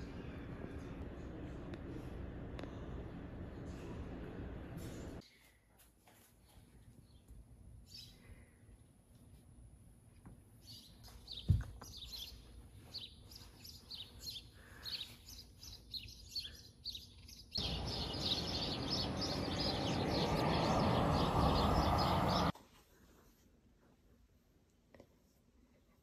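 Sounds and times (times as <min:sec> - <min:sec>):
small birds chirping: 0:07.0 - 0:08.7, 0:10.6 - 0:22.5
loud steady rushing noise: 0:17.6 - 0:22.5.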